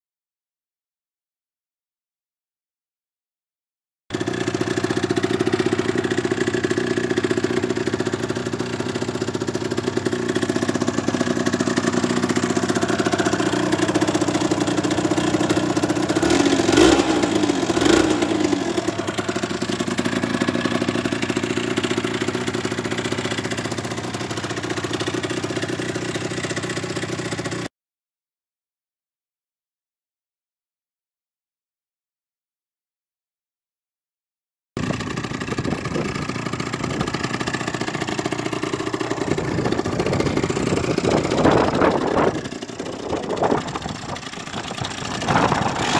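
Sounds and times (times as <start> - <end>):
two-stroke engine idling: 4.1 - 27.7, 34.8 - 45.9
engine throttle blips: 11.8 - 19.5, 39.1 - 45.9.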